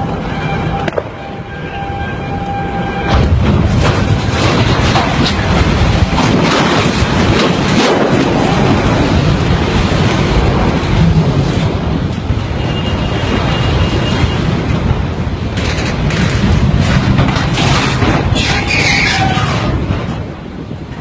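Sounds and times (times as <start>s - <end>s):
road traffic: 0.0s - 21.0s
truck noise: 0.0s - 21.0s
wind buffeting a microphone: 0.0s - 21.0s.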